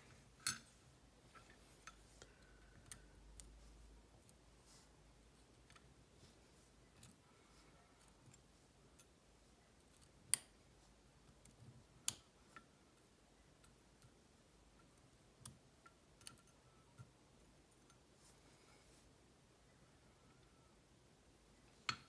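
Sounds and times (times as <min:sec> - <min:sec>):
small metal clicks: 0:11.3 - 0:12.7, 0:14.8 - 0:17.1.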